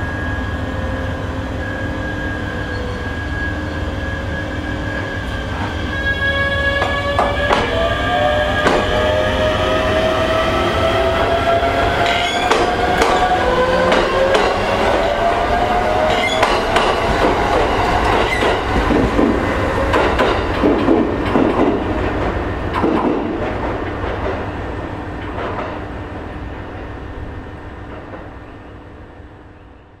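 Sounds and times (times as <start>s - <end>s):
electric train inverter whine: 0.0s - 20.7s.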